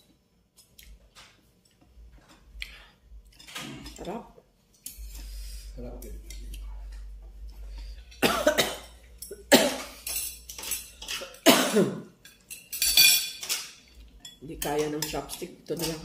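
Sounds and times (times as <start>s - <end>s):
person coughing: 8.2s - 10.0s, 11.4s - 12.1s.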